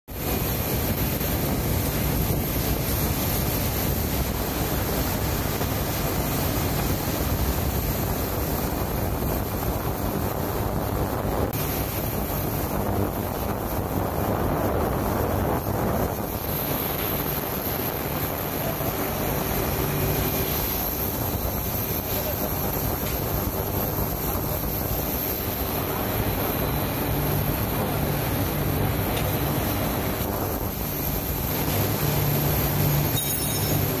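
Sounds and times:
machine hum: 0.2s - 34.0s
high-pitched whine: 16.2s - 34.0s.

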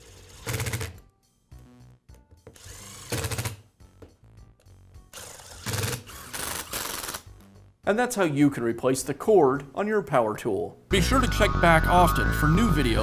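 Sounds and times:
impact driver running: 0.3s - 1.0s, 2.5s - 3.6s, 5.2s - 7.2s.

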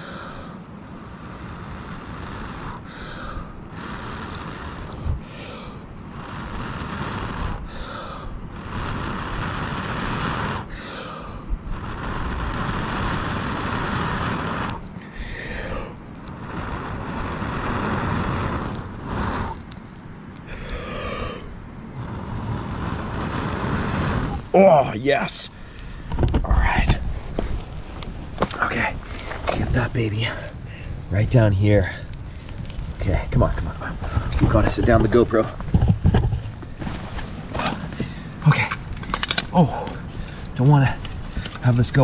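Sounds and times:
person blowing long breaths: 0.0s - 19.7s, 20.4s - 24.4s, 33.8s - 34.5s, 36.3s - 38.5s.

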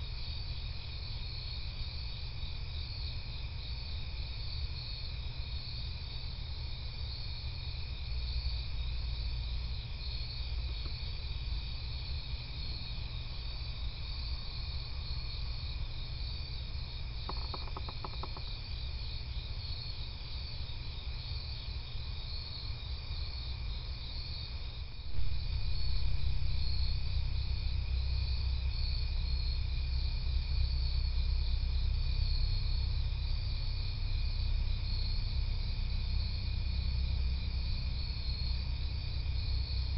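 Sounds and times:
crickets chirping: 0.0s - 39.9s
rapid ticks: 17.2s - 18.6s
low rumble: 25.0s - 32.2s.

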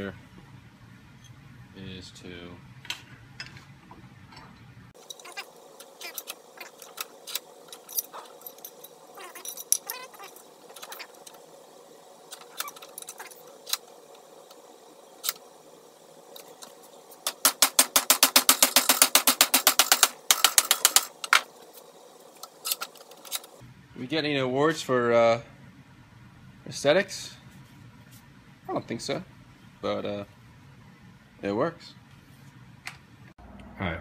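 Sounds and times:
light metal clinks and knocks: 7.7s - 11.0s.

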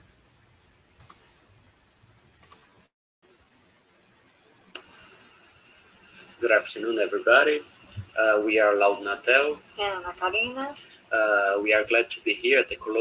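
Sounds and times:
computer mouse clicks: 1.0s - 1.3s, 2.4s - 2.7s
steady hiss: 3.3s - 13.0s.

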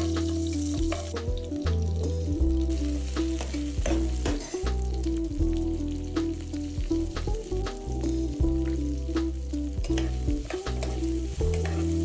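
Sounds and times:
potatoes sizzling in hot oil: 0.0s - 12.0s
soft background music: 0.0s - 12.0s
spatula scraping and knocking pot: 9.8s - 12.0s.

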